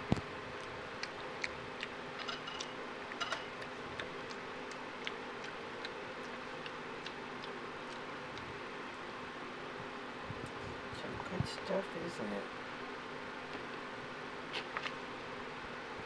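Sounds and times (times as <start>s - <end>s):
monkey chewing with lips smacking: 0.5s - 8.6s.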